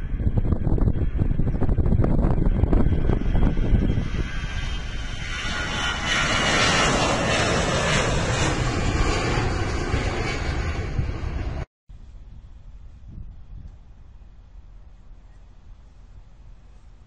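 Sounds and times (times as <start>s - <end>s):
jet engines roaring at takeoff: 0.0s - 11.7s
wind rumble on microphone: 0.0s - 17.0s.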